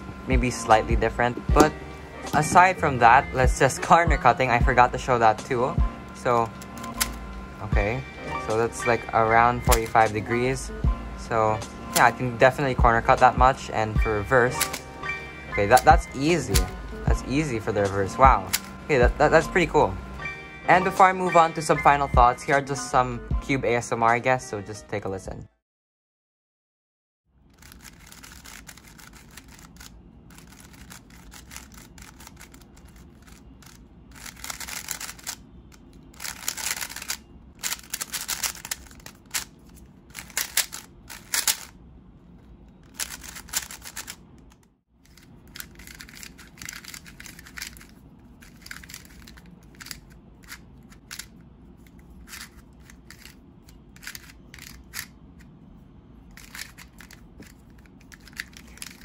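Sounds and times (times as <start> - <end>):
speed cube clicking: 27.6 - 41.7, 42.8 - 44.2, 45.1 - 51.3, 52.2 - 53.4, 54.0 - 55.1, 56.3 - 59.0.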